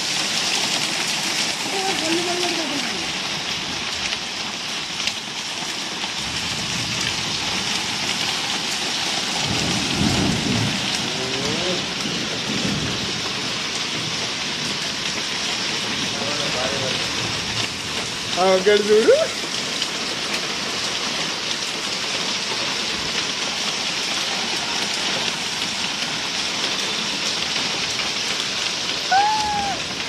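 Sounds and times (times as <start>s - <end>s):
heavy rain and hail: 0.0s - 30.0s
thunder rumbling: 9.2s - 14.9s.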